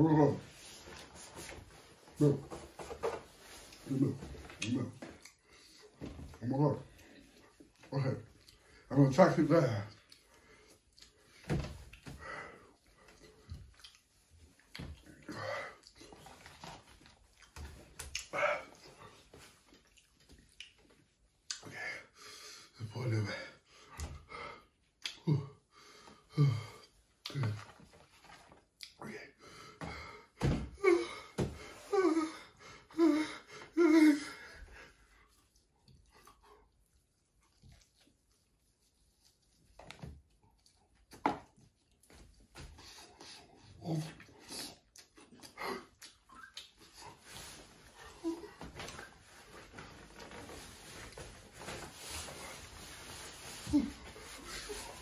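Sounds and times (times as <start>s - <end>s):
rustling of cardboard boxes: 47.2s - 55.0s.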